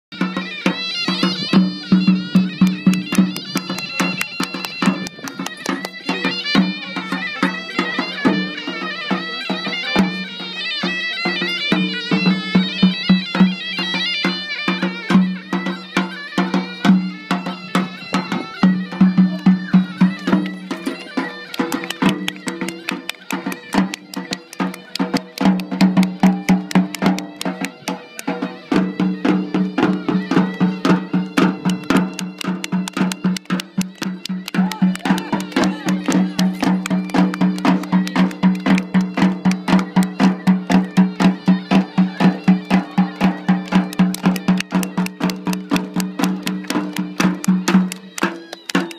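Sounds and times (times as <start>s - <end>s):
wind instrument wavering melody: 0.1s - 48.9s
fast regular drumbeats: 16.4s - 48.9s.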